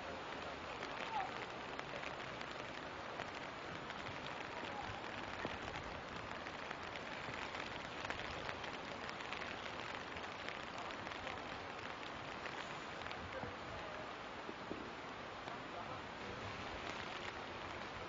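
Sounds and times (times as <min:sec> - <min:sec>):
rain falling: 0:00.0 - 0:18.0.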